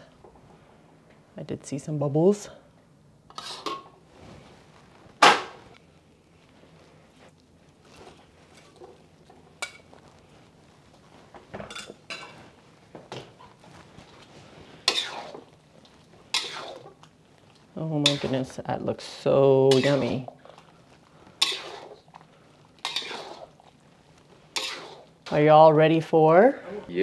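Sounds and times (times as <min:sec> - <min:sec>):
metal utensils clinking on wok: 0:19.7 - 0:20.2.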